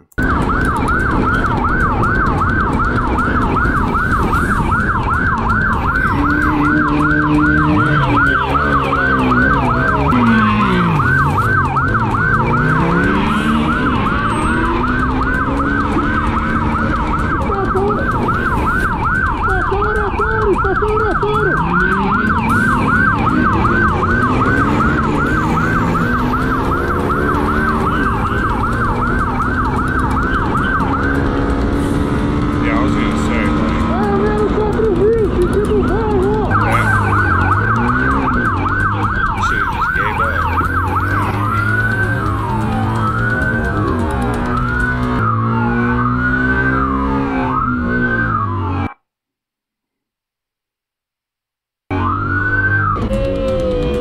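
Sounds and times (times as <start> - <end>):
motorcycle engine revving: 0.0 - 48.9, 51.9 - 54.0
police siren yelping: 0.0 - 49.0, 51.9 - 54.0.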